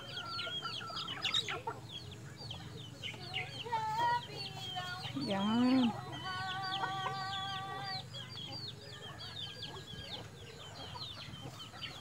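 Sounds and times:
chicks peeping: 0:00.0 - 0:12.0
chicken calling: 0:03.6 - 0:08.0.

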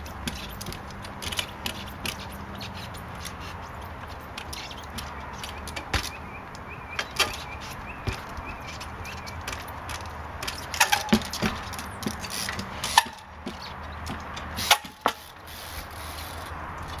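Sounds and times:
bike landing on wooden boards: 0:00.0 - 0:17.0.

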